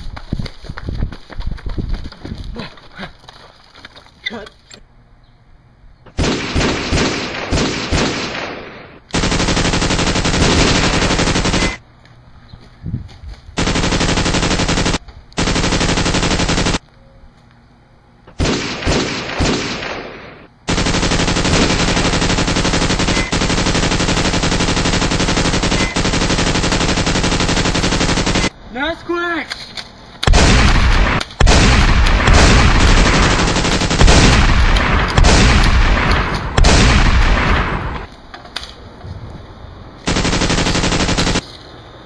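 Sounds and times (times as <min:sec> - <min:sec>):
separate gunshots: 0:06.1 - 0:11.8, 0:13.6 - 0:16.8, 0:18.3 - 0:28.6, 0:30.2 - 0:38.1, 0:40.1 - 0:41.4
machine-gun fire: 0:06.2 - 0:11.8, 0:13.6 - 0:16.8, 0:18.3 - 0:28.6, 0:30.2 - 0:38.1, 0:40.1 - 0:41.4.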